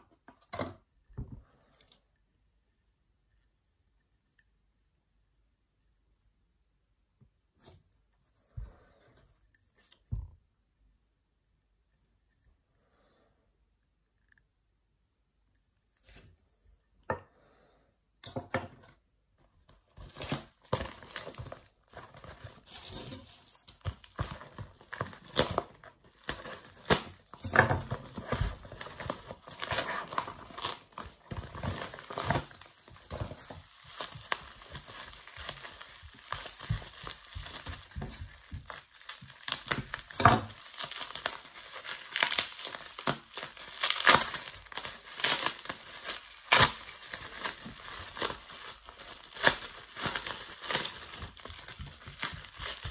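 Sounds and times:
plastic packaging crinkling: 0:19.9 - 0:52.9.

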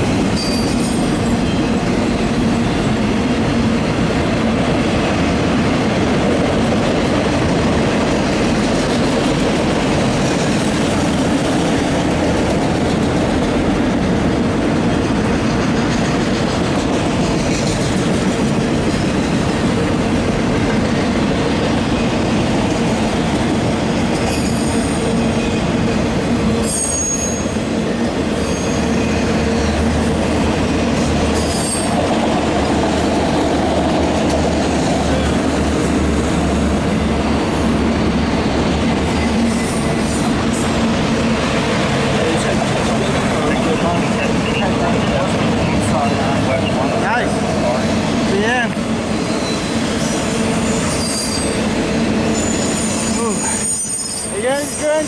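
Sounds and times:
train wheels rolling on rails: 0:00.0 - 0:55.0
high wheel squeals: 0:00.4 - 0:01.7, 0:24.2 - 0:25.8, 0:26.6 - 0:27.7, 0:28.4 - 0:29.9, 0:31.4 - 0:32.0, 0:49.1 - 0:55.0.

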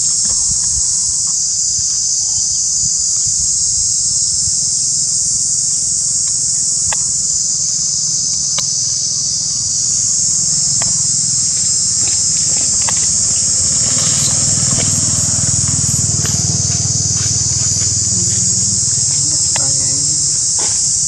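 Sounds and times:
high-pitched insect chorus: 0:00.0 - 0:21.0
faint clicks: 0:06.2 - 0:07.1
low rumble: 0:09.4 - 0:20.6.

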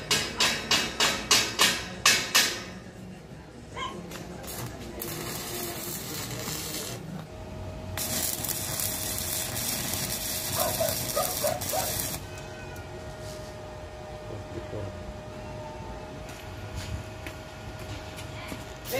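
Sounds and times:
stick welding arc on steel: 0:04.1 - 0:12.5, 0:18.6 - 0:18.9.

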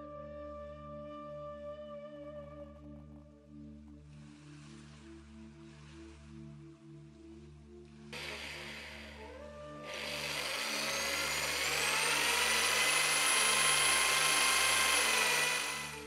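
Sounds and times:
soft background music: 0:00.0 - 0:15.8
electric drill whirring: 0:08.2 - 0:16.0.

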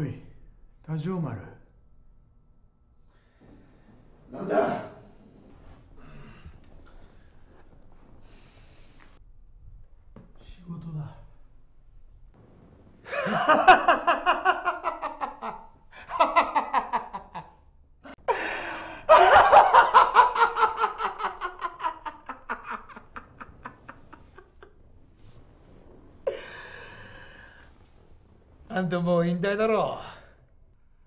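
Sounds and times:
man laughing loudly: 0:13.1 - 0:17.5, 0:19.1 - 0:24.7.

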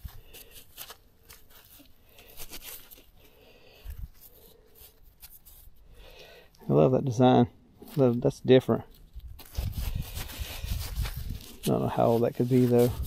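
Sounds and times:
glove rubbing dirt off knife: 0:00.0 - 0:06.5, 0:08.9 - 0:13.0.

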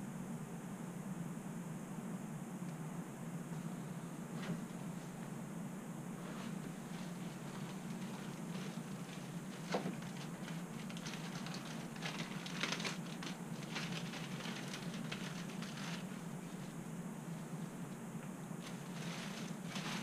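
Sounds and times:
steady low hum: 0:00.0 - 0:20.0
plastic packaging crinkling: 0:06.5 - 0:16.8, 0:18.6 - 0:20.0.

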